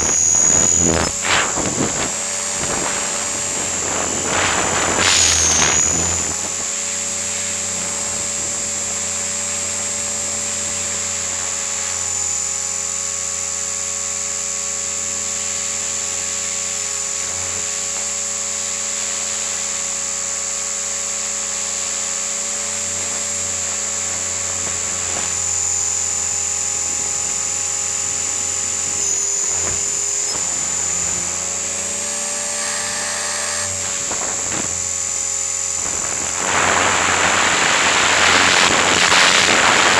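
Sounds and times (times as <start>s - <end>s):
rush of wind: 0.0s - 9.1s, 33.6s - 39.9s
rc helicopter rotor whine: 0.0s - 39.9s.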